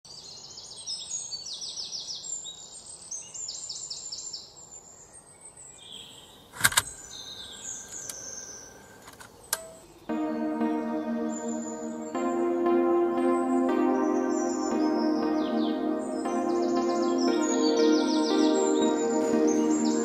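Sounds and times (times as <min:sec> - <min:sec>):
songbirds chirping: 0:00.4 - 0:12.2
sharp click: 0:06.6 - 0:07.0, 0:09.0 - 0:09.9
soft ambient music: 0:09.6 - 0:20.0.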